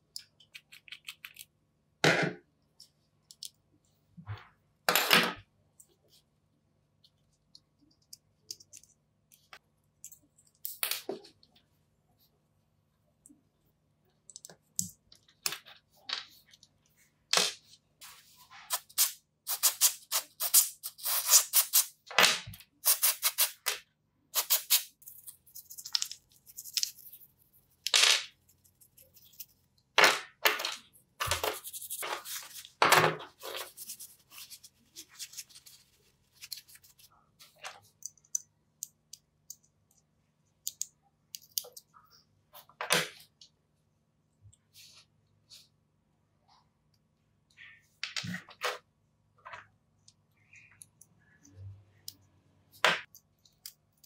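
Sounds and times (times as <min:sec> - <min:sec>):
small parts clicking and scraping: 0:24.4 - 0:42.0.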